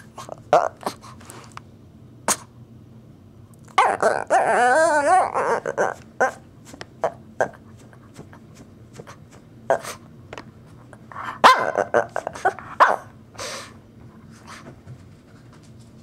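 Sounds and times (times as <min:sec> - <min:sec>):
small dog barking: 0:03.8 - 0:04.5, 0:11.4 - 0:13.2.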